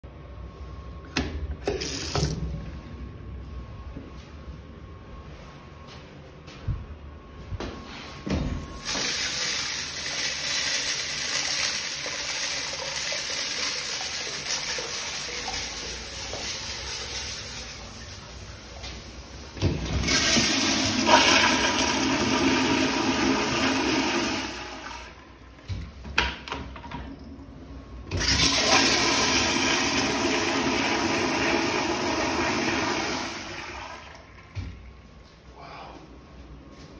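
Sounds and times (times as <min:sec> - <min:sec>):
toilet flushing: 0:01.6 - 0:02.4, 0:08.7 - 0:25.7, 0:28.1 - 0:35.0
urinal flushing: 0:01.6 - 0:02.4, 0:08.7 - 0:35.1.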